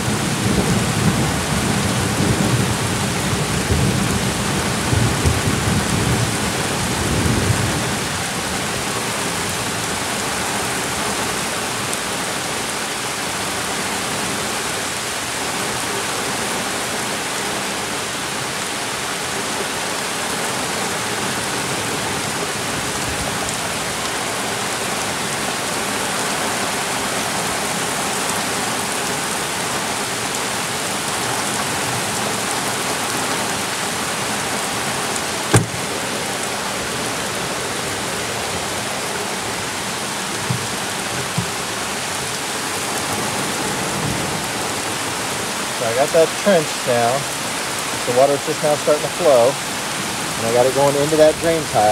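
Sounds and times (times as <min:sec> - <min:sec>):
raindrops striking microphone: 0:00.0 - 0:13.8, 0:28.2 - 0:51.9
torrential rain: 0:00.0 - 0:51.9
low rumble of thunder: 0:00.1 - 0:08.0.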